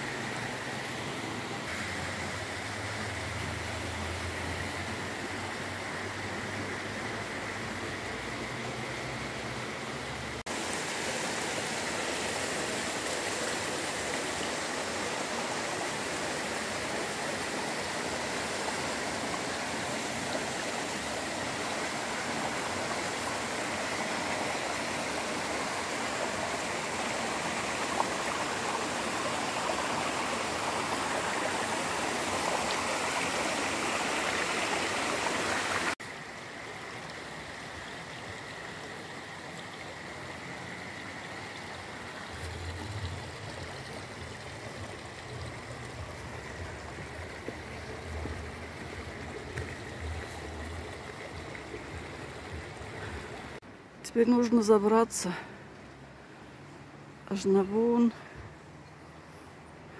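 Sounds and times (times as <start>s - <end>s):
waterfall rushing: 0.0s - 36.0s
shallow stream rushing: 0.0s - 59.9s.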